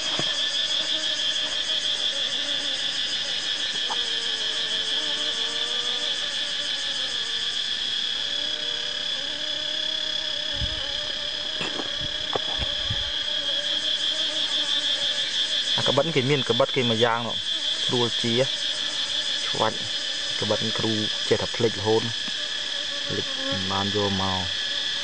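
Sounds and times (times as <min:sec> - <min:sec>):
knife scraping honeycomb: 0:00.0 - 0:01.6, 0:11.4 - 0:15.2
insects chirring: 0:00.0 - 0:25.0.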